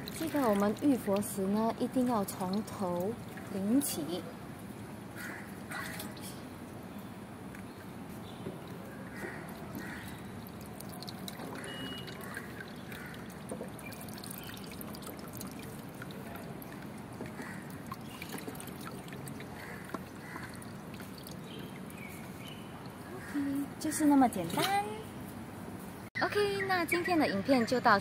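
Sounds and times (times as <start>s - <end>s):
water trickling from ladle: 0.0s - 4.3s, 8.6s - 24.0s.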